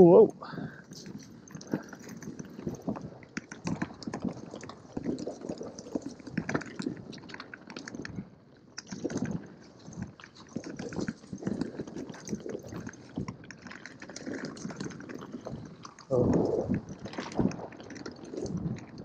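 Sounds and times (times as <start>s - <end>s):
bike tyres knocking and rattling: 0.8s - 19.0s.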